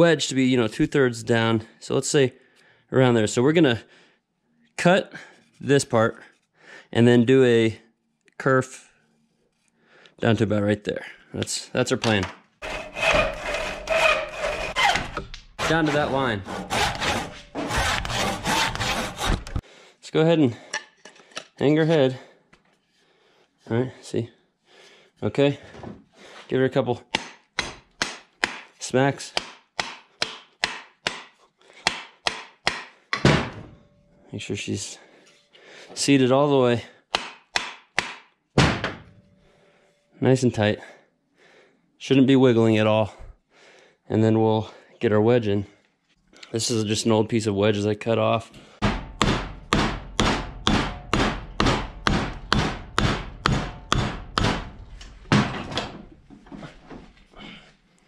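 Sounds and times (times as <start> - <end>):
hammer striking wooden wedge: 27.1 - 28.7, 29.3 - 33.6, 37.1 - 39.0, 48.8 - 55.9
hammer knocking on wood: 48.8 - 54.7.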